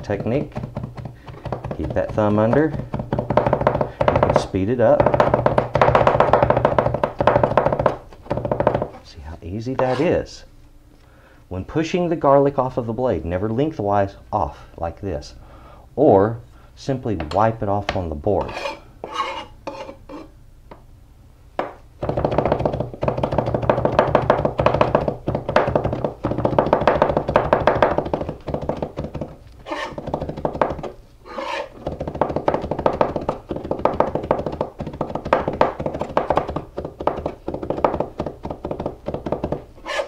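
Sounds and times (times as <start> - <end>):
knife chopping on plastic board: 0.0 - 9.0, 21.6 - 40.0.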